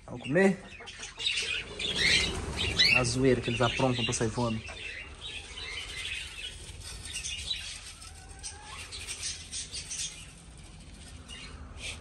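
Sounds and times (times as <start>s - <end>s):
birds chirping: 0.0s - 12.0s
birds flapping wings: 1.3s - 9.4s.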